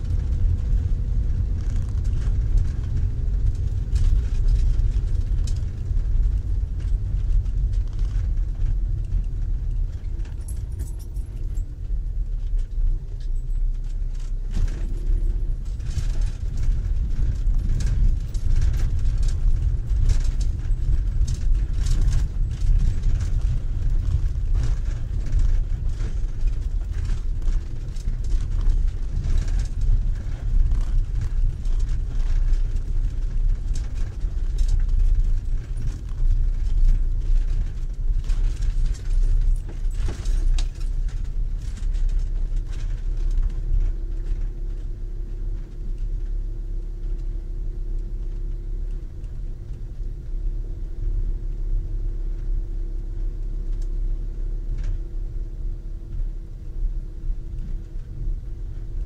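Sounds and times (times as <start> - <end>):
stones crackling under wheels: 0.0 - 59.0
vehicle engine and tyres rumbling: 0.0 - 59.0.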